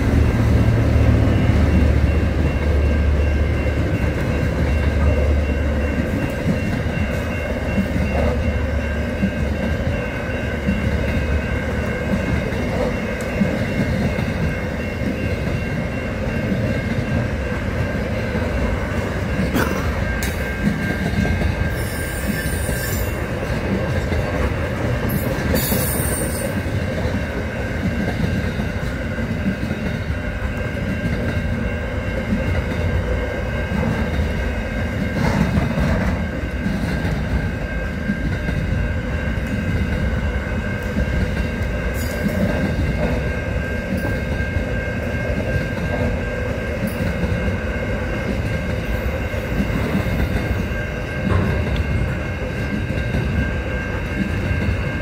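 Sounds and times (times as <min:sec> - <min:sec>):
train wheels rumbling on rail: 0:00.0 - 0:55.0
high-pitched wheel squeal: 0:21.7 - 0:23.2, 0:25.6 - 0:26.6.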